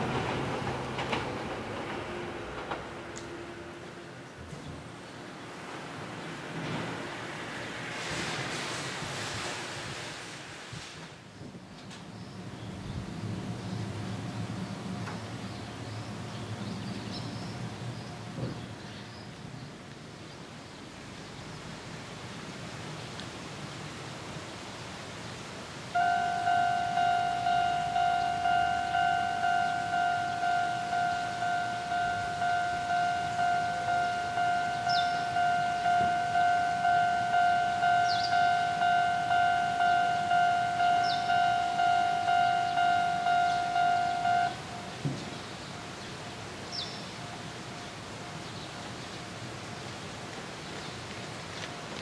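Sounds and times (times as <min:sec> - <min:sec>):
short high chirps: 0:26.0 - 0:44.9
level crossing alarm ringing: 0:26.0 - 0:45.1.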